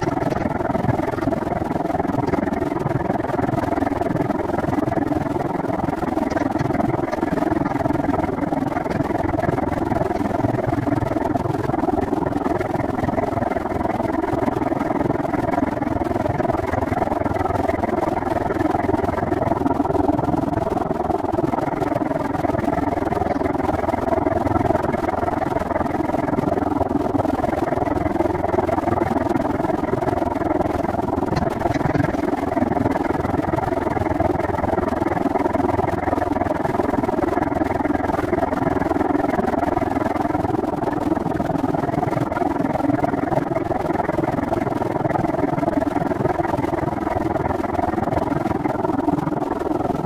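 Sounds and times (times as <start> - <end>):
wind noise on microphone: 0.0 - 43.2.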